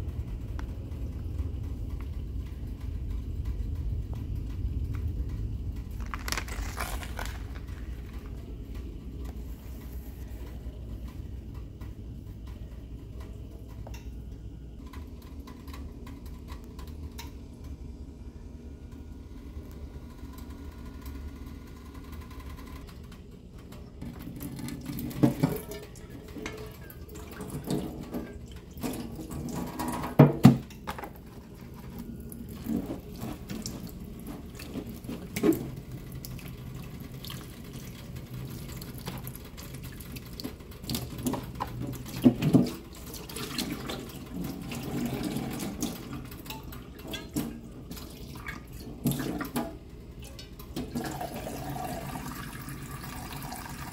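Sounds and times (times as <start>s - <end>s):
liquid sloshing and splashing: 24.5s - 53.3s.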